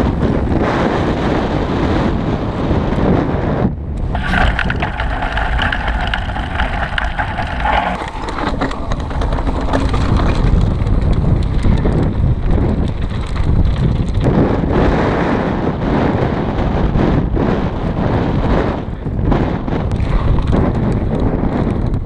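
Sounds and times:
wind buffeting microphone: 0.0s - 22.0s
bike clicks and rattles: 4.0s - 14.9s
steady whirring tone: 4.1s - 10.3s.

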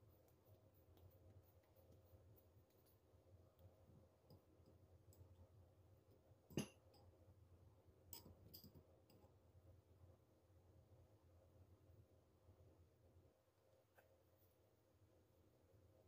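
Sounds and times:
faint low hum: 0.0s - 16.0s
light clicks and taps of kitchenware: 0.2s - 5.5s, 6.1s - 7.2s, 8.1s - 9.4s.

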